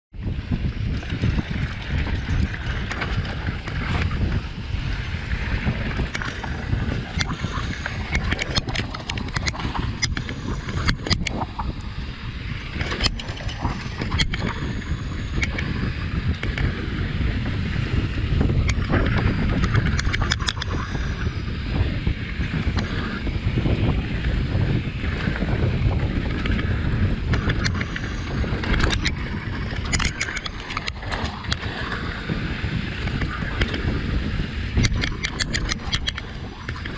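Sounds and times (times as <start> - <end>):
wind buffeting microphone: 0.1 - 36.9
bike clicks and rattles: 0.6 - 4.3, 5.6 - 11.7, 12.8 - 15.7, 18.6 - 20.9, 26.2 - 31.8, 34.8 - 36.9.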